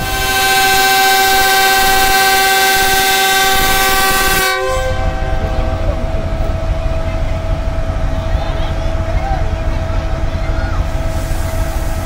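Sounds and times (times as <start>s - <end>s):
locomotive air horn chord: 0.0s - 7.9s
locomotive low rumble: 0.0s - 12.0s.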